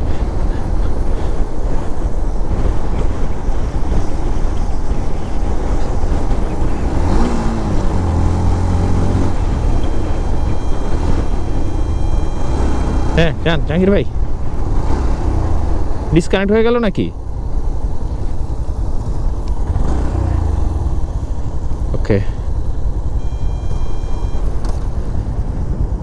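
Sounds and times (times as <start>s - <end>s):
wind rushing over microphone: 0.0s - 16.4s
motorcycle engine running: 5.6s - 13.5s, 17.2s - 26.0s.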